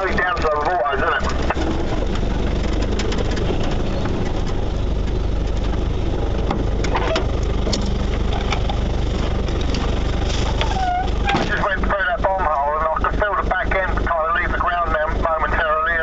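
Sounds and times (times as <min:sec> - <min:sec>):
light knocks and rattles: 0:00.0 - 0:11.6
engine idling: 0:00.0 - 0:16.0.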